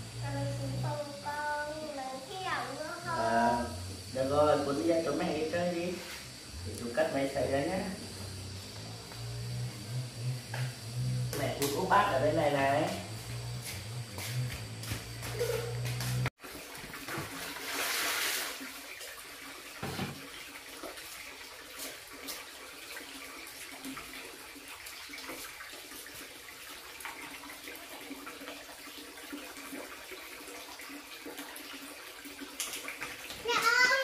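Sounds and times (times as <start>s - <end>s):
bath water running and splashing: 0.0s - 34.0s
low hum: 2.8s - 16.3s.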